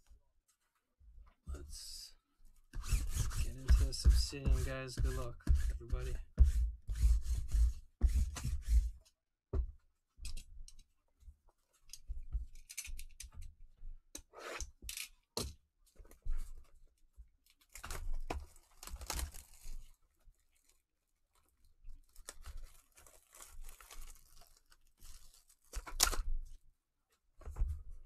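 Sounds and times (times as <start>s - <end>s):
plastic film crackling and tearing: 17.4s - 26.2s.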